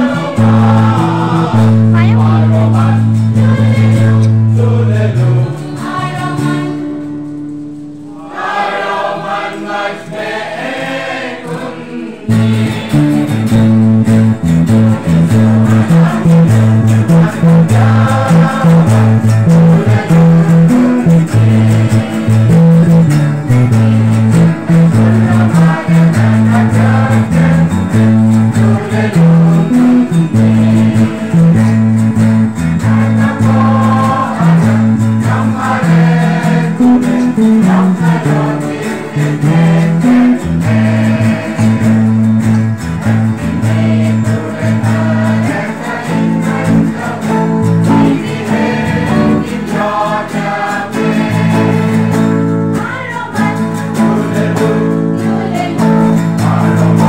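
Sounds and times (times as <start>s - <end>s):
group singing a carol: 0.0s - 57.0s
strummed acoustic guitars: 0.0s - 57.0s
deep bass notes: 12.3s - 38.5s.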